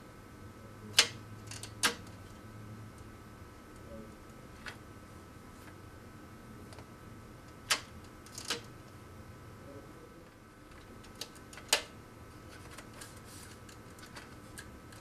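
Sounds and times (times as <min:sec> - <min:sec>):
cables clicking into panel: 0:07.5 - 0:08.7, 0:10.7 - 0:12.0.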